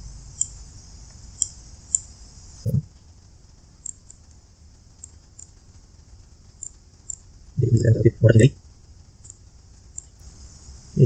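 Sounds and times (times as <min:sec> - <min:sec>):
computer mouse clicking: 0:00.4 - 0:00.6, 0:01.4 - 0:02.1.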